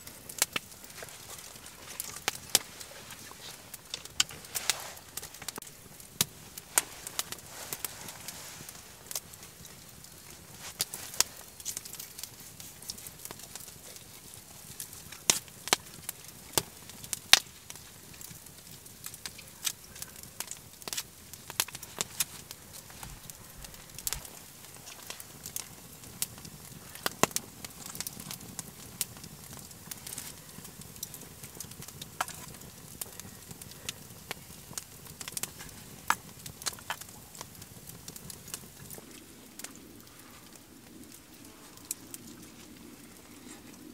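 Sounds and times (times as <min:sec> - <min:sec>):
campfire crackling: 0:00.0 - 0:43.9.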